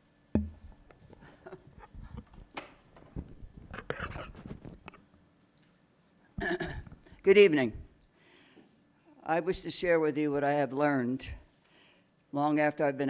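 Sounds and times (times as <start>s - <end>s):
microphone handling rustling: 0.5s - 5.0s.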